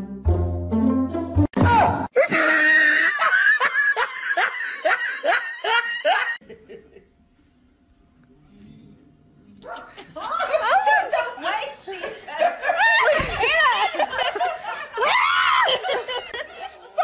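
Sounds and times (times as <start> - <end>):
person laughing hard: 2.2 - 6.4.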